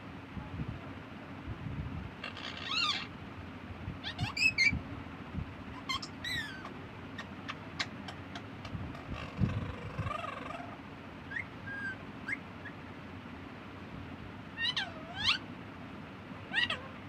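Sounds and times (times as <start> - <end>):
parakeets squawking: 2.2 - 3.1, 4.0 - 4.8, 5.8 - 12.8, 14.6 - 15.5, 16.5 - 17.0.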